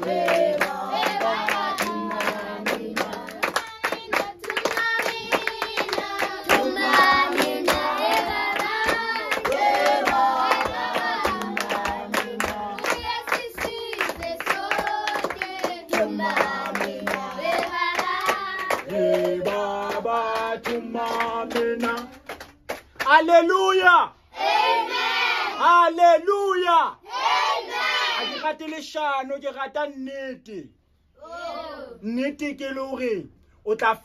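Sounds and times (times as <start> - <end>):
hand clapping on the beat: 0.0 - 23.2.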